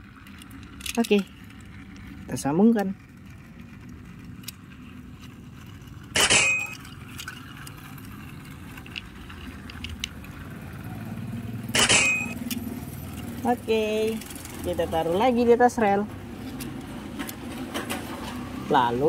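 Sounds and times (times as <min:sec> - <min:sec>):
plastic toy train clacks: 0:00.0 - 0:10.7
low background rumble: 0:00.0 - 0:17.1.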